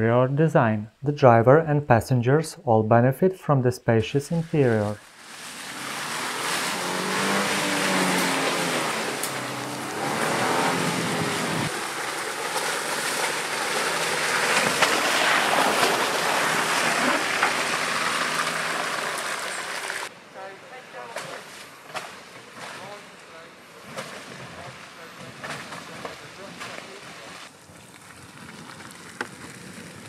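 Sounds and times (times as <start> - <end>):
tyres sloshing through mud: 4.6 - 20.1, 21.2 - 30.0
engine running under load: 5.0 - 20.1.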